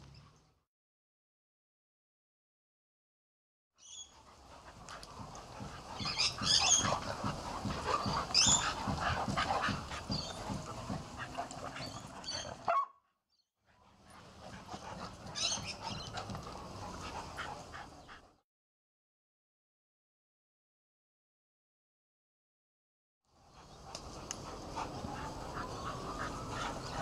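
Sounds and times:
dogs yipping: 0:03.9 - 0:13.0, 0:14.1 - 0:18.3, 0:23.6 - 0:27.0
dogs growling: 0:04.2 - 0:12.8, 0:13.8 - 0:18.4, 0:23.5 - 0:27.0.

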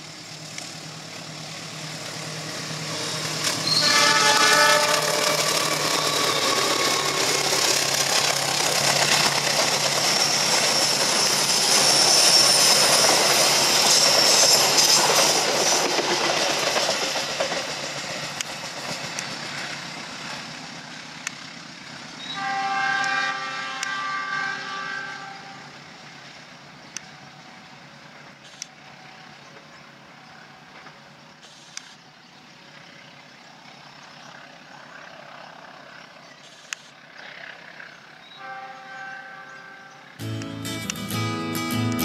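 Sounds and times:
train wheels rumbling on track: 0:00.0 - 0:40.2
locomotive horn blasts: 0:03.6 - 0:05.5, 0:22.3 - 0:25.7, 0:38.3 - 0:40.1
sharp clicks of wheels: 0:21.2 - 0:21.5.

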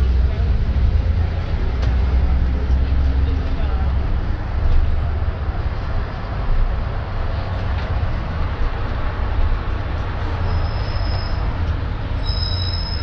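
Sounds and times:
bus engine and road rumble: 0:00.0 - 0:13.0
brake squeal: 0:10.2 - 0:13.0.

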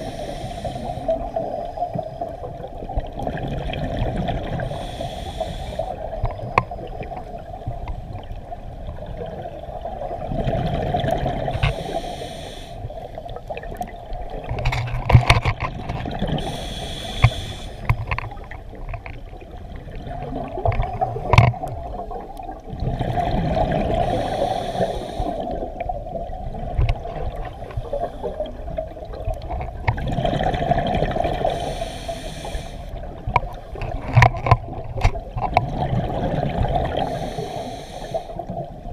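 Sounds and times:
exhaled bubbles underwater: 0:00.0 - 0:38.9
muffled water rumble: 0:00.0 - 0:38.9
scattered clicks and knocks: 0:14.5 - 0:16.1.

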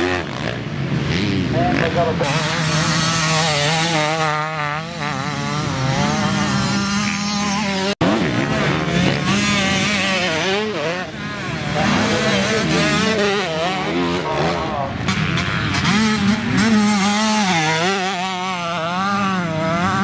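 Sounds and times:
dirt bike engines revving: 0:00.0 - 0:20.0.

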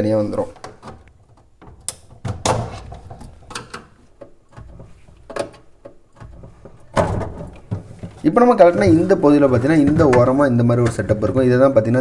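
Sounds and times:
plastic clicks and snaps: 0:00.6 - 0:02.4.

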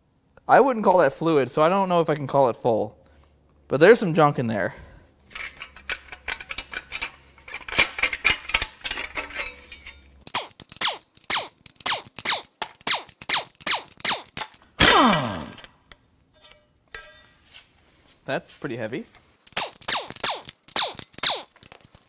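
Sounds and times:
metal tools clinking and scraping: 0:05.3 - 0:12.4, 0:16.4 - 0:17.7, 0:19.1 - 0:22.0
pneumatic impact wrench bursts: 0:10.3 - 0:15.7.

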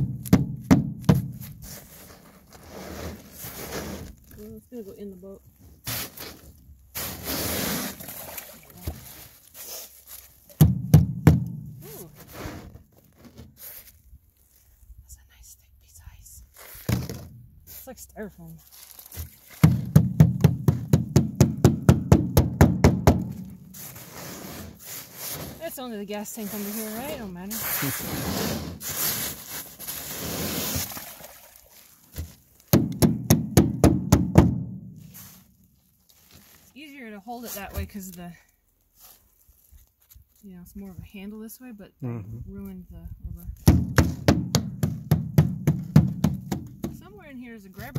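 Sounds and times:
bar scraping ice off metal deck: 0:01.4 - 0:04.3, 0:05.8 - 0:08.2, 0:23.7 - 0:31.0
sharp knocks: 0:19.6 - 0:23.5, 0:32.7 - 0:34.8, 0:43.7 - 0:47.0.

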